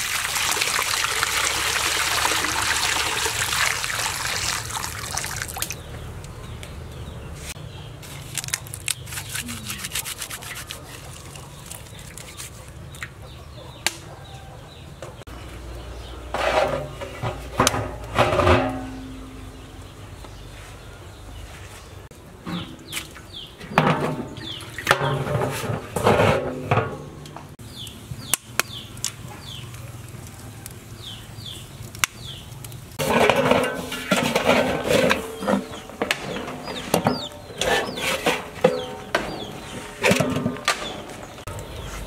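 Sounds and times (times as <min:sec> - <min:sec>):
chickens chirping: 0:09.0 - 0:16.3, 0:18.9 - 0:25.2, 0:27.6 - 0:33.5, 0:34.2 - 0:42.0
metal basin clattering: 0:16.2 - 0:19.8, 0:23.6 - 0:27.6, 0:33.0 - 0:41.4.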